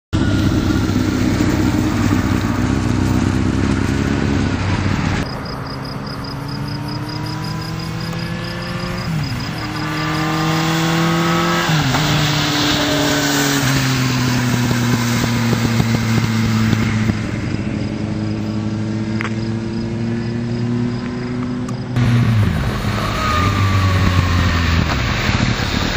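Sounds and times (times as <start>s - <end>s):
motorcycle accelerating through gears: 0.2s - 25.9s.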